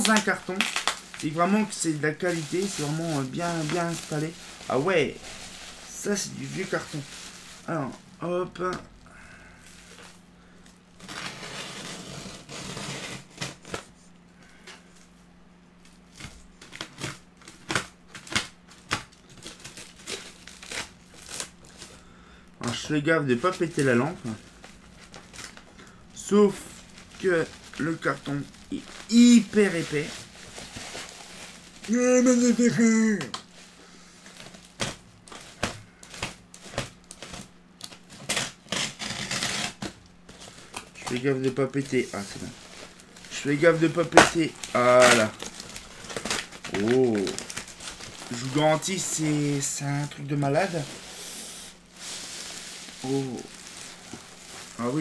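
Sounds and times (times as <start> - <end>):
sharp crackles: 0.0 - 1.4
cardboard scraping and crunching: 0.0 - 7.6, 38.1 - 51.3
bubble wrap and cardboard rustling: 0.0 - 55.0.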